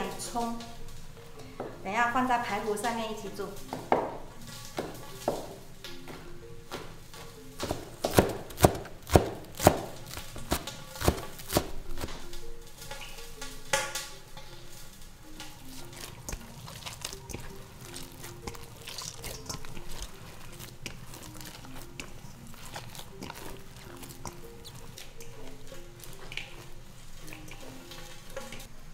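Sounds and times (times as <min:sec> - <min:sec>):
soft background music: 0:00.0 - 0:28.9
cleaver chopping on wooden board: 0:07.6 - 0:09.9, 0:10.5 - 0:12.1.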